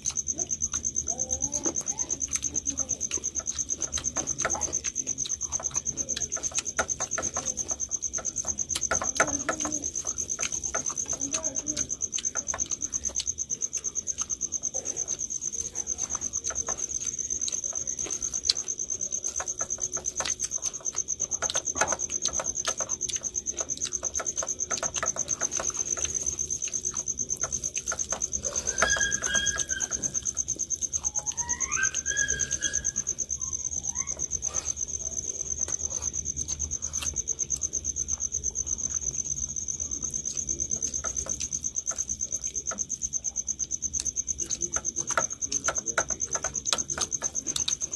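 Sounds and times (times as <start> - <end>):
cricket chirping: 0.0 - 47.9
hands mixing and eating rice: 0.0 - 47.9
bird calling: 31.0 - 34.4.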